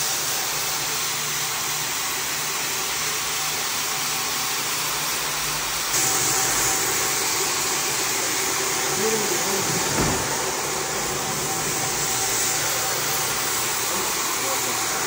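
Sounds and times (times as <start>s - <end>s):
rug-washing equipment rushing: 5.9s - 15.0s.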